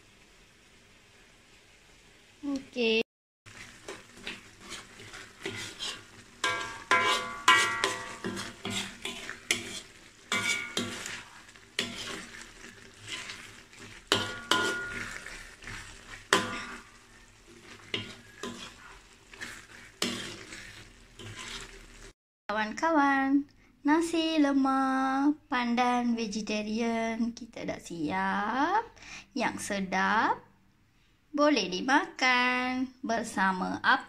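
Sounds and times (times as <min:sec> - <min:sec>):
sauce frying in pan: 0:00.0 - 0:22.2
spatula scraping a wok: 0:03.5 - 0:22.2
wok ringing: 0:05.4 - 0:12.3, 0:13.0 - 0:21.7.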